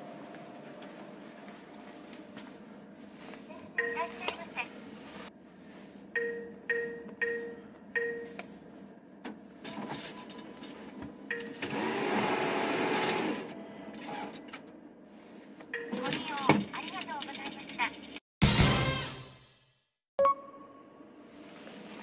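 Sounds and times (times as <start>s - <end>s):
atm keypad beeping: 11.3s - 11.6s
cash dispenser whirring: 11.5s - 14.5s.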